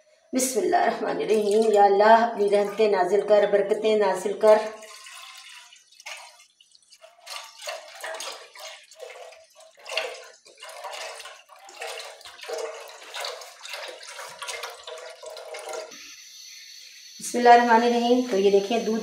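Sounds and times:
milk pouring into metal pot: 1.2s - 15.9s.

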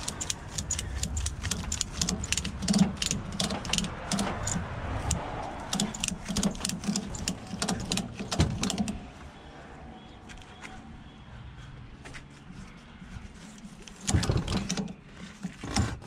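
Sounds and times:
ratchet strap clicking: 0.0s - 9.0s.

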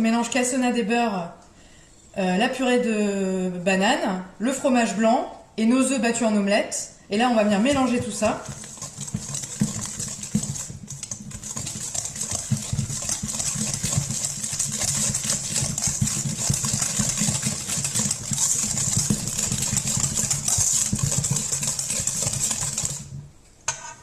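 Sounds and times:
whisk scraping metal bowl: 7.3s - 23.9s.

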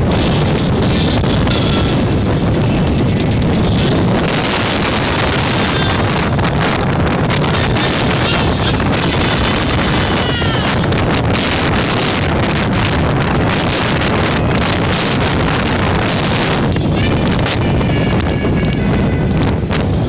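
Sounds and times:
strong wind on microphone: 0.0s - 20.0s.

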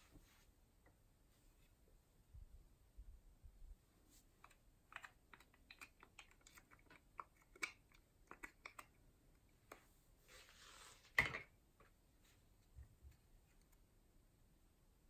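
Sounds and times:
plastic cup crackling and clicking: 4.4s - 9.0s.

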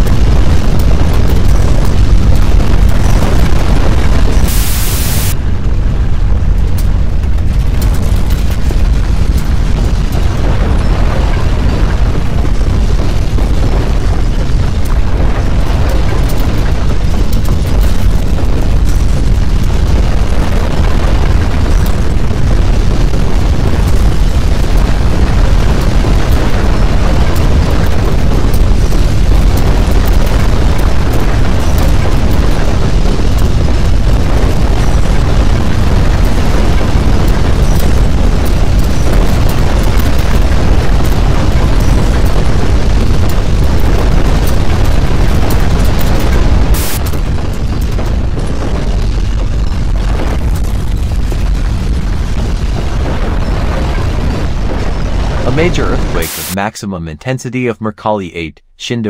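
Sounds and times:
deep earthquake rumbling: 0.0s - 57.4s.

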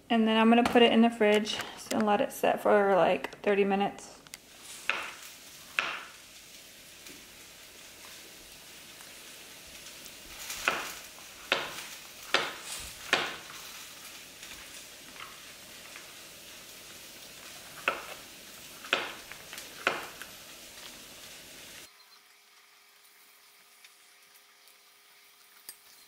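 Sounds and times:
knife chopping on plastic board: 4.9s - 5.2s, 5.8s - 6.0s, 11.5s - 13.4s, 17.8s - 18.2s, 18.9s - 19.2s.

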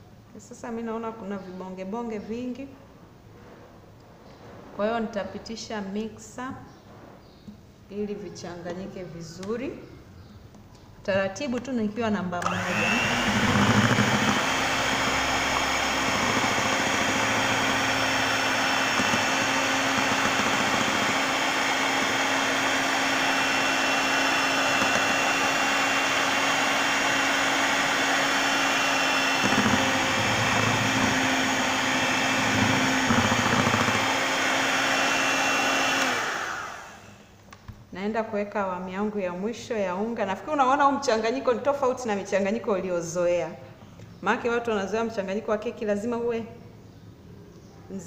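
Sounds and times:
electric hand mixer running: 12.4s - 37.3s.

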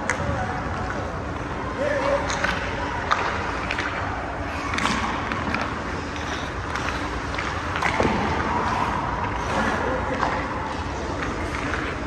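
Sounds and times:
hockey sticks clicking on pucks: 0.0s - 12.0s
skate blades scraping ice: 4.5s - 12.0s.

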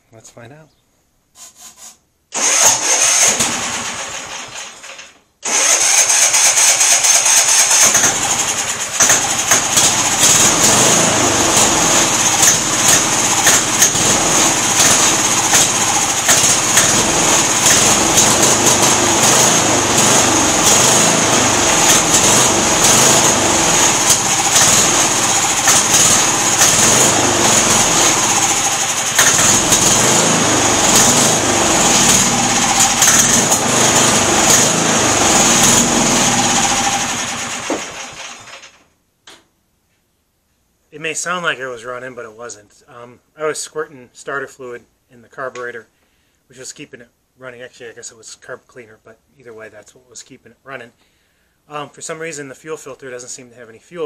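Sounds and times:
lawn tractor engine running: 2.4s - 38.8s
loud engine burst: 2.4s - 38.8s.

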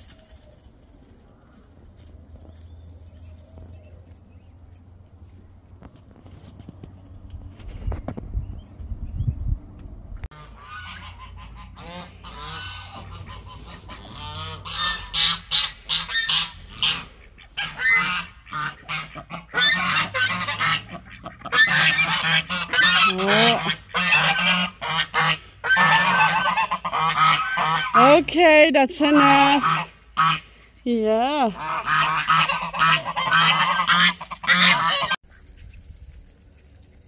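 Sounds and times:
geese honking: 10.3s - 30.7s, 31.5s - 35.2s.

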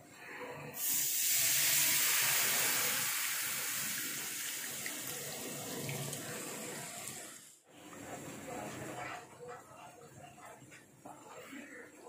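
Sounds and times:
liquid sizzling in hot oil: 0.8s - 7.5s.

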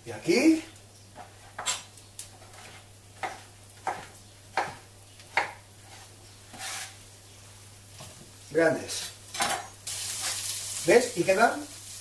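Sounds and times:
knife striking cutting board: 2.6s - 5.6s.

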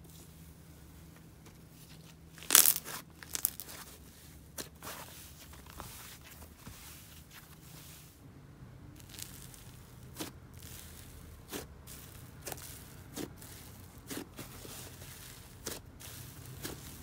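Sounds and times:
slime crackling: 2.4s - 3.9s, 9.0s - 17.0s.

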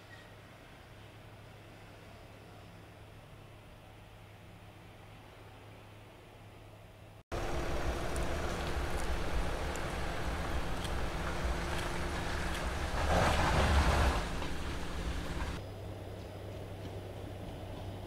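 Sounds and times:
faint low hum: 0.2s - 18.0s
engine rumble: 0.9s - 18.0s
tyres crunching on gravel: 7.3s - 15.6s.

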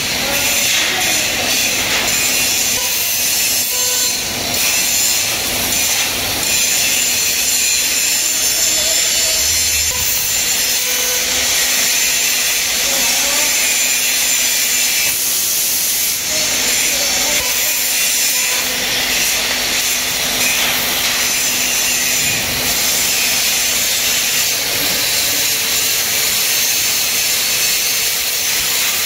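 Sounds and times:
laser cutter gas jet hissing: 0.0s - 29.0s.

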